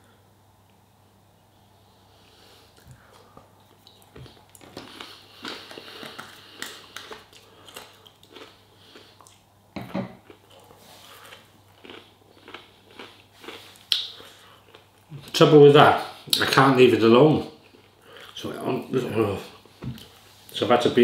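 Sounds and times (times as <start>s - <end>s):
person chewing crunchy food: 2.7s - 15.3s.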